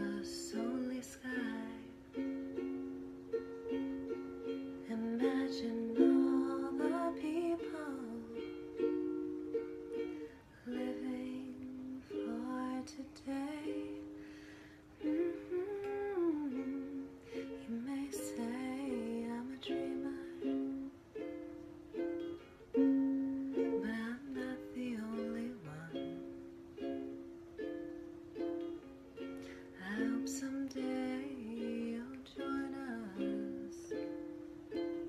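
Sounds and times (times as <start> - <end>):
woman singing: 0.0 - 2.2, 4.8 - 8.5, 10.5 - 14.2, 15.0 - 21.0, 23.1 - 26.4, 29.5 - 34.2
ukulele strumming chords: 0.0 - 35.0.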